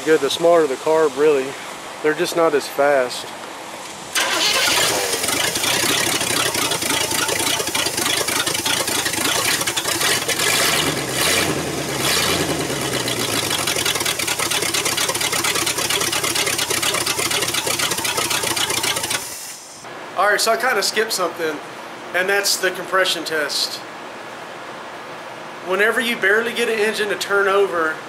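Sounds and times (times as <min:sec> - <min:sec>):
car engine idling and revving: 0:04.2 - 0:19.4.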